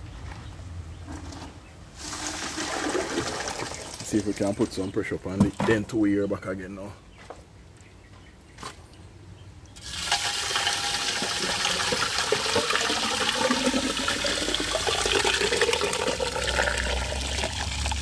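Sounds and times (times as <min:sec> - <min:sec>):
liquid concrete pouring from bucket: 0:02.0 - 0:04.4, 0:09.8 - 0:18.0.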